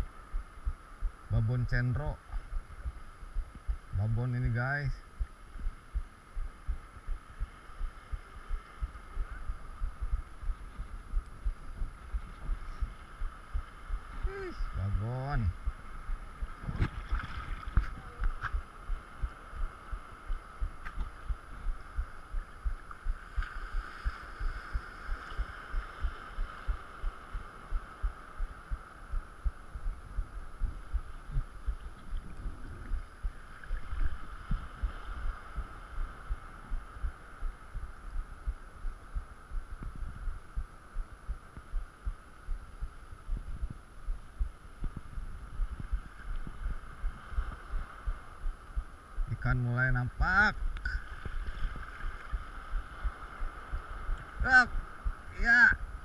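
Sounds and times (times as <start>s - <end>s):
steady hiss: 0.0s - 56.0s.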